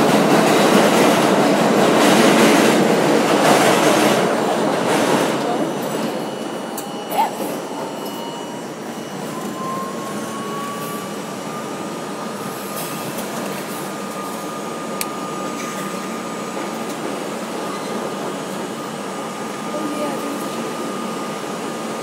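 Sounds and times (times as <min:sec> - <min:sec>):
train wheels rumbling on rails: 0:00.0 - 0:22.0
train motor whine: 0:05.4 - 0:17.9.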